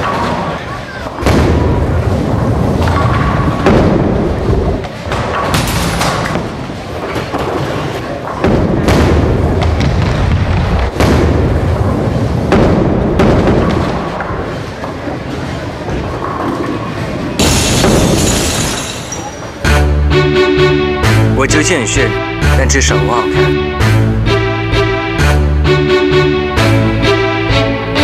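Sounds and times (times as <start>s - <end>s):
heavy thuds and booms: 1.2s - 6.5s, 8.4s - 14.2s
sharp hits: 17.4s - 25.4s.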